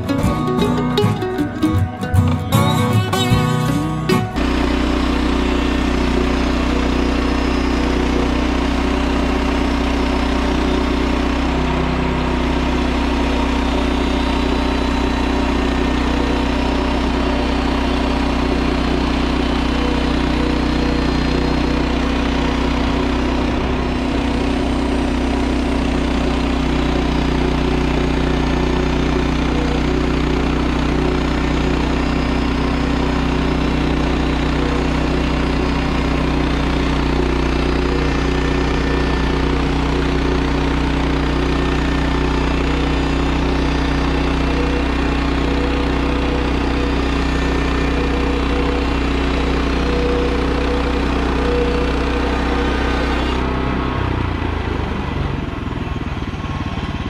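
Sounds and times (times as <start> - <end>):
gas engine running steadily: 0.0 - 57.0.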